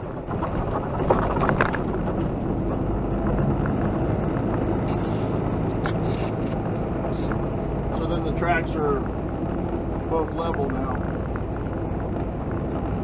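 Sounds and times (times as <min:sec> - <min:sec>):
knocks and rattles: 0:00.0 - 0:06.9
truck diesel engine drone: 0:00.0 - 0:13.0.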